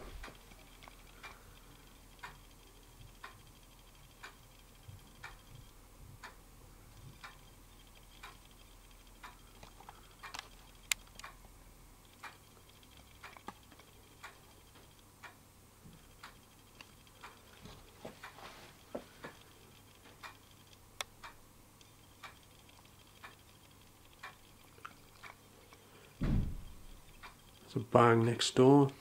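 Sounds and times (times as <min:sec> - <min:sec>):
low steady hum: 0:00.0 - 0:29.0
clock ticking: 0:00.2 - 0:15.4, 0:16.0 - 0:29.0
small clicks: 0:07.0 - 0:11.4, 0:12.0 - 0:15.4, 0:16.0 - 0:27.7.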